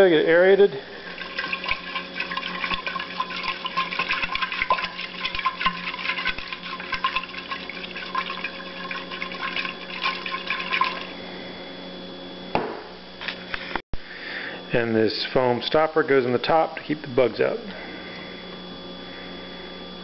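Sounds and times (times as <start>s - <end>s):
liquid sloshing in a glass flask: 0.8s - 11.2s
flask knocking on countertop: 12.6s - 12.9s.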